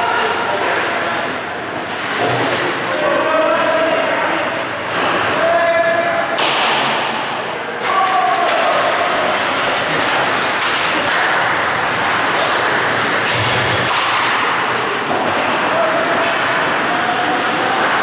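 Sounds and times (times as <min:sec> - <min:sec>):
loud rush of noise: 0:00.0 - 0:18.0
skates scraping on ice: 0:00.7 - 0:02.9, 0:07.8 - 0:18.0.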